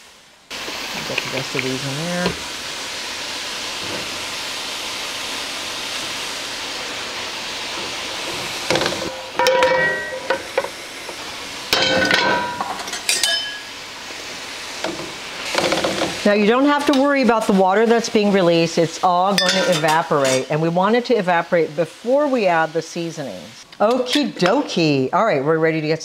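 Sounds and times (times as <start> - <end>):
mushrooms sizzling in oil: 0.0 - 26.0
metal skillet clanks: 8.7 - 10.7, 11.7 - 13.8, 14.8 - 16.2, 19.3 - 20.5.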